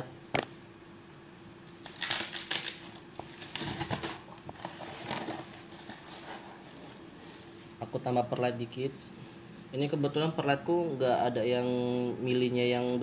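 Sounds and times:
faint steady hum: 0.0s - 13.0s
rustling and crackling handling: 1.9s - 7.8s.

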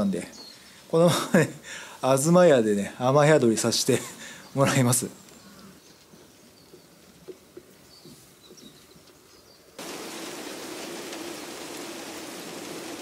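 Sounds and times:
faint bird chirps: 4.3s - 10.4s
rain falling: 9.8s - 13.0s.

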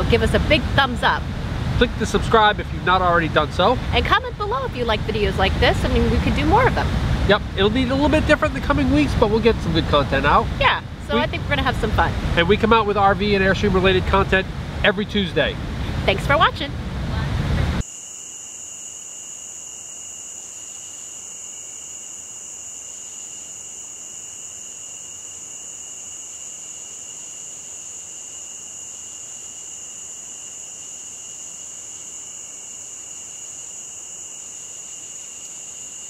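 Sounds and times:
night insects trilling: 17.8s - 36.0s.

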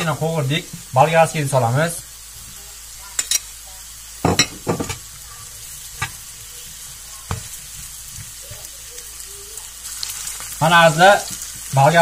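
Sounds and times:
vegetables sizzling in oil: 0.0s - 12.0s
spatula knocking against pan: 4.3s - 5.0s.

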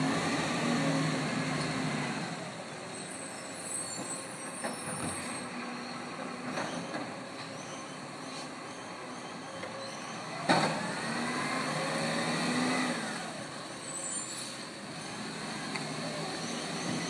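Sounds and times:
truck engine revving: 10.6s - 13.6s
air brakes hissing: 13.8s - 14.8s.

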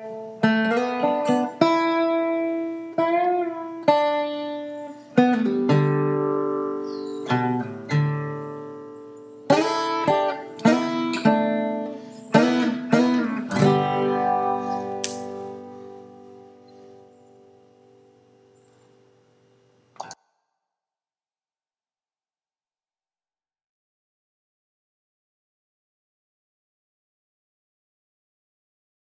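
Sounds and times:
plucked string instrument melody: 0.0s - 18.5s.

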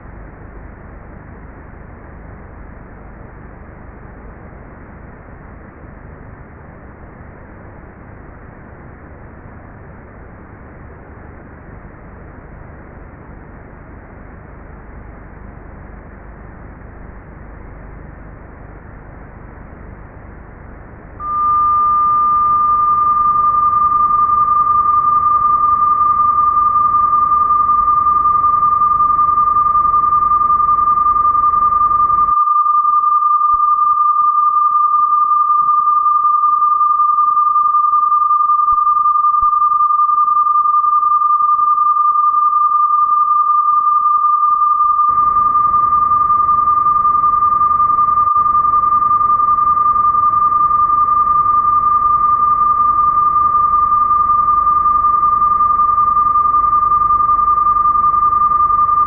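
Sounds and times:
steady high-pitched test tone: 21.0s - 59.0s.

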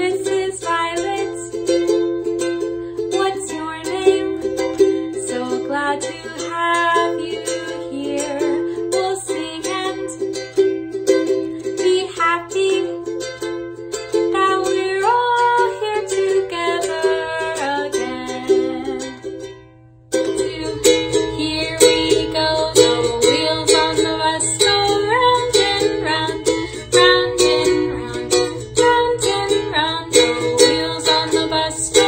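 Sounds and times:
strummed string instrument music: 0.0s - 32.0s.

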